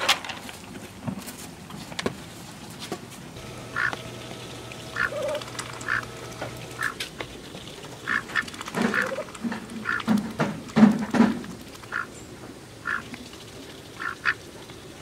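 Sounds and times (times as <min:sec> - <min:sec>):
ducks quacking: 0:03.6 - 0:04.1, 0:04.8 - 0:07.0, 0:08.0 - 0:10.2, 0:11.8 - 0:12.1, 0:12.8 - 0:13.1, 0:14.0 - 0:14.4.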